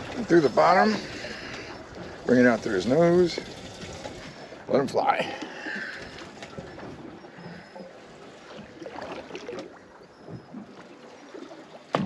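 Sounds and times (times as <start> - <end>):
water lapping against boat: 0.0 - 12.0.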